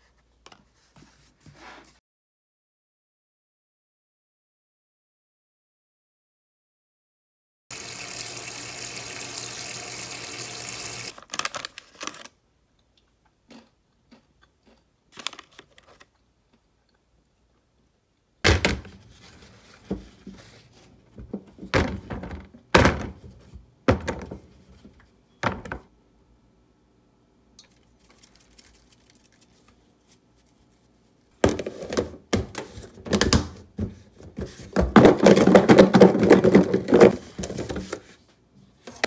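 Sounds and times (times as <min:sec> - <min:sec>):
water running from tap: 0:07.7 - 0:11.1.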